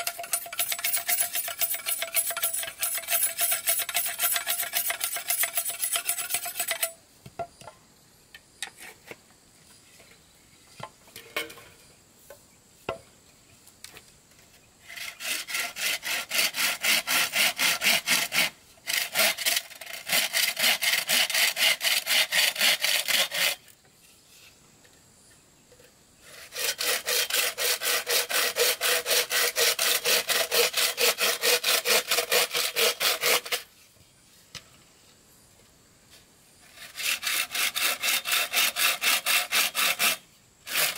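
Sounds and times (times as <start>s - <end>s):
hand saw cutting wood: 0.0s - 7.0s, 14.8s - 23.7s, 26.2s - 33.7s, 36.6s - 40.9s.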